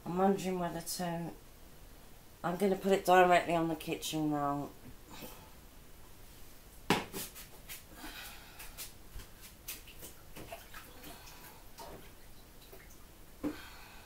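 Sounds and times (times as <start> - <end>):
water splashing in sink: 9.7 - 13.0.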